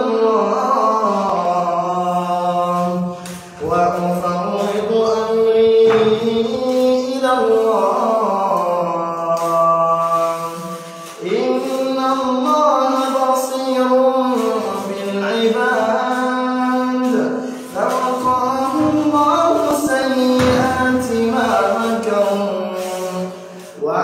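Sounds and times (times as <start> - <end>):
man reciting melodically: 0.0 - 24.0.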